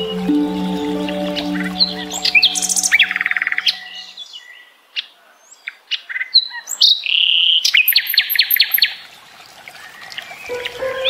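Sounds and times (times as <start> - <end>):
small songbird chirping: 0.0 - 4.7.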